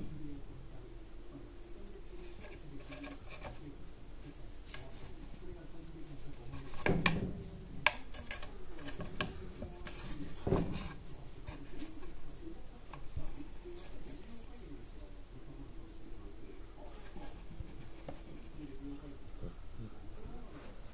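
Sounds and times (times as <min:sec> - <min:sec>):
rubbing and scuffing on wood: 0:02.2 - 0:14.6.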